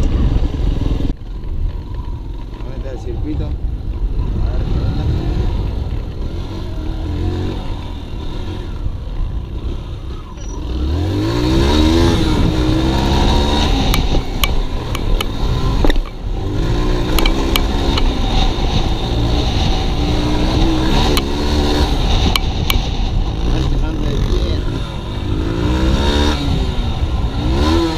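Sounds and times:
dirt bike engine revving: 0:04.2 - 0:27.9
sharp little ticks: 0:13.9 - 0:16.2, 0:17.1 - 0:18.2.

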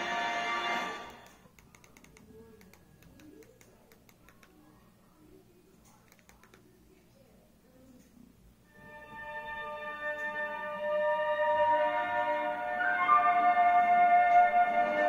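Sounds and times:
orchestral fanfare: 0:00.0 - 0:01.2, 0:08.8 - 0:15.0
faint voice: 0:01.8 - 0:08.5.

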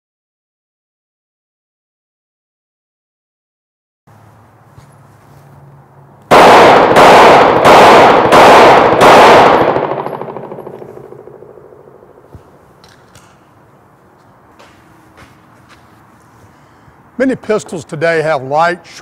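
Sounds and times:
pistol shots with echo: 0:06.3 - 0:12.2.

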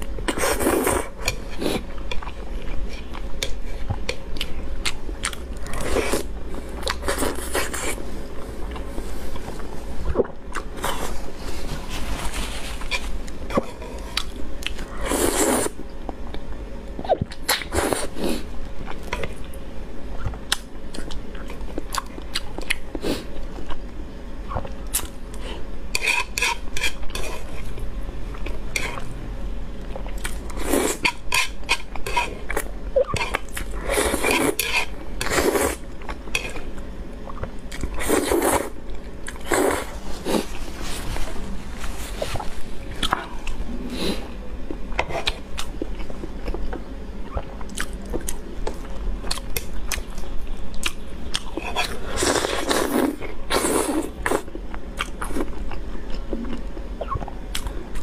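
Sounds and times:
slurping noodles: 0:15.0 - 0:15.8, 0:33.2 - 0:35.8, 0:38.0 - 0:38.8, 0:39.4 - 0:40.5.

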